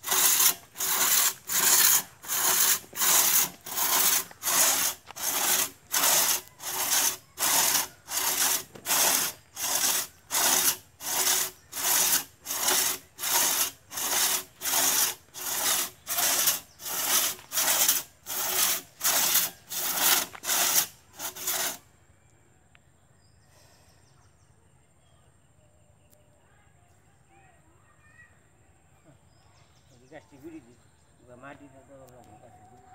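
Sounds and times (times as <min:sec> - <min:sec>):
crosscut saw rasping through log: 0:00.0 - 0:21.9.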